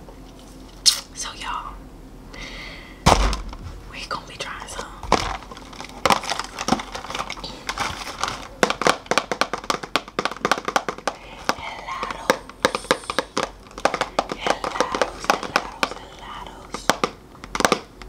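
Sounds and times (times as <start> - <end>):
fingernails tapping on cardboard: 8.6 - 16.1, 16.8 - 17.9.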